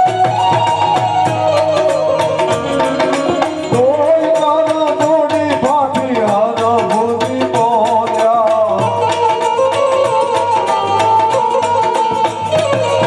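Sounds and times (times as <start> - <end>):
harmonium chords: 0.0 - 13.0
man singing: 3.6 - 9.8.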